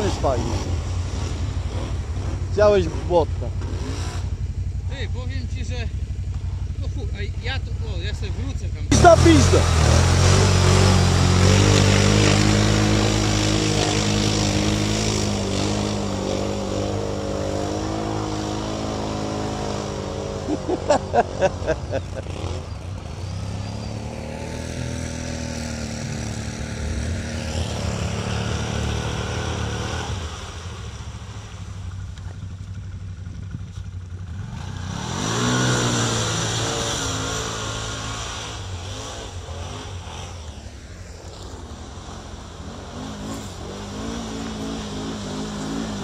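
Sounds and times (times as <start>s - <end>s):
atv engines revving: 0.0s - 46.0s
mud splashing and spraying: 8.9s - 22.4s.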